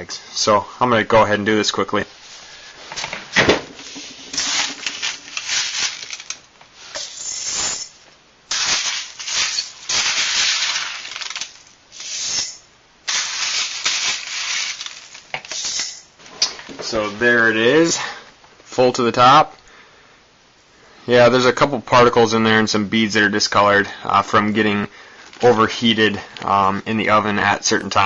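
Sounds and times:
beads pouring into glass jar: 3.9 - 6.4, 7.0 - 16.0.

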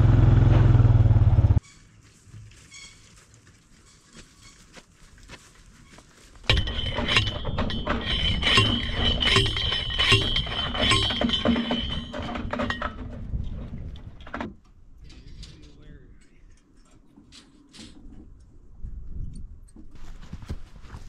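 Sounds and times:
metallic ringing: 6.4 - 13.1
post driver clanking on post: 6.5 - 13.2.

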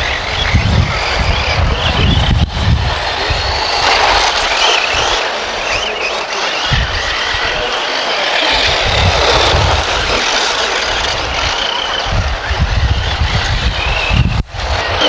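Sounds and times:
wind rumble on microphone: 0.0 - 7.8, 8.5 - 15.0
electric motors hissing: 0.0 - 15.0
faint high whines: 0.0 - 15.0
tyres on gravel: 2.8 - 12.4.

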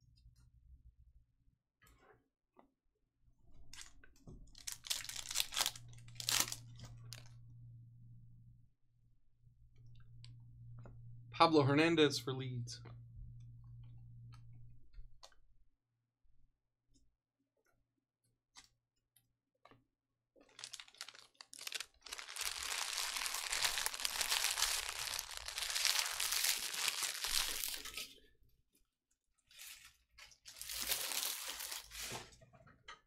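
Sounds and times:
wrapper tearing and crinkling: 4.5 - 7.3, 20.4 - 28.2, 29.5 - 32.3.

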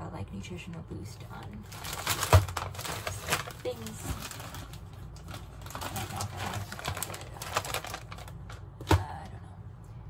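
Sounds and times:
packages rustling: 1.6 - 9.0.

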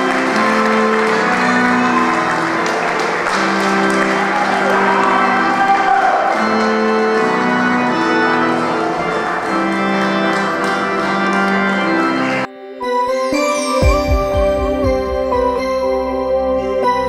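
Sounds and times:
congregation rustling: 0.0 - 12.5
church organ chords: 0.0 - 17.0
keyboard music: 0.0 - 17.0.

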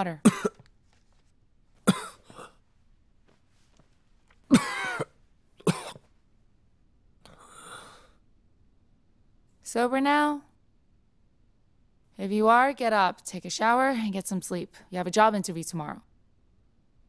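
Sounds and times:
man coughing: 0.2 - 0.6, 1.8 - 2.6, 4.5 - 6.1.

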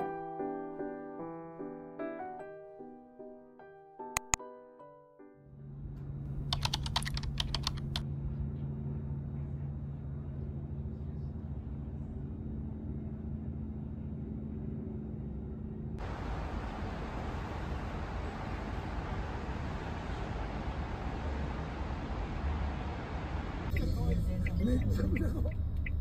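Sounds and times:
sharp typing-like clicks: 4.2 - 4.4, 6.4 - 8.0
low hum: 5.6 - 26.0.

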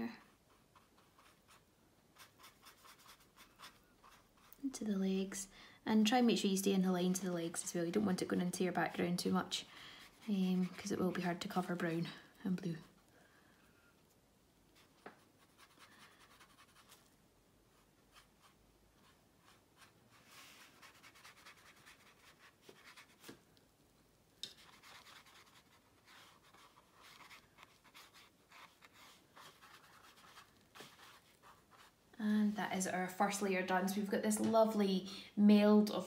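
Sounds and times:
paintbrush scratching on paper: 0.2 - 4.7, 10.0 - 11.9, 14.7 - 17.1, 17.7 - 23.4, 24.5 - 32.0.

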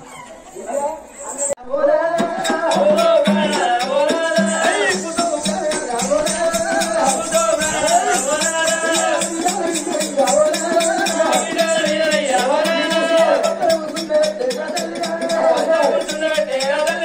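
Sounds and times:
person singing wavering melody: 1.6 - 17.0
hand drums fast beat: 1.9 - 17.0.

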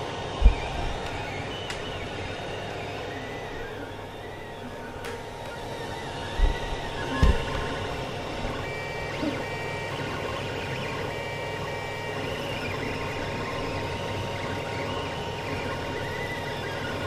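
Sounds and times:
cooling fan whirring: 0.0 - 17.0
stepper motors whining: 0.0 - 17.0.

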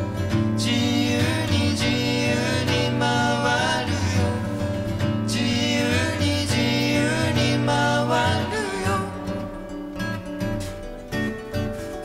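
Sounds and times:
acoustic guitars playing: 0.0 - 12.0.

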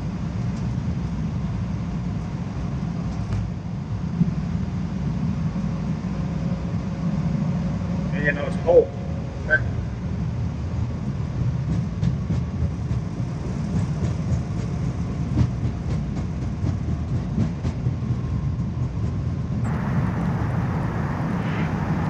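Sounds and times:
airliner engines rumbling: 19.6 - 22.0.

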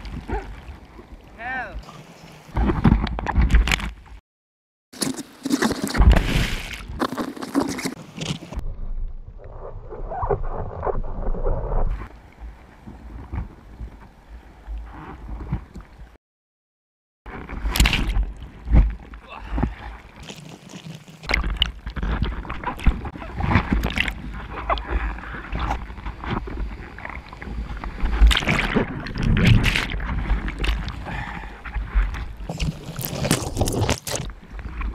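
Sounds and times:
sea water rushing and splashing: 17.3 - 34.9.

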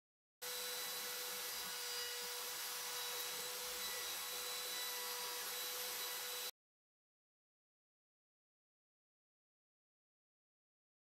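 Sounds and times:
router spindle whine: 0.4 - 6.5.

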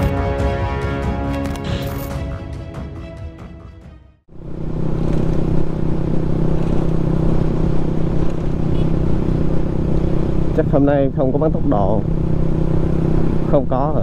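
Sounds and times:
intro music: 0.0 - 4.3
motorcycle engine starting and running: 4.3 - 14.0.

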